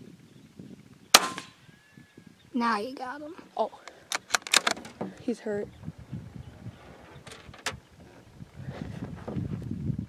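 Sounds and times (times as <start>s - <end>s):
sharp crack: 1.1s - 1.7s
low unsteady rumble: 4.8s - 10.0s.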